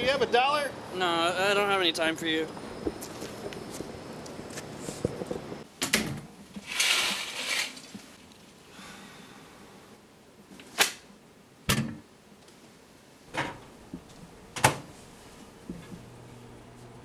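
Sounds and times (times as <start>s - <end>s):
rustling scrape: 6.6s - 8.2s.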